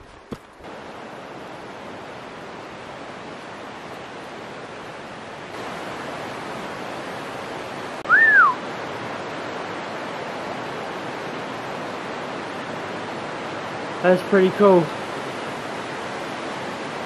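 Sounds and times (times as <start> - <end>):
river water rushing: 0.0 - 17.0
whistled note: 8.0 - 8.6.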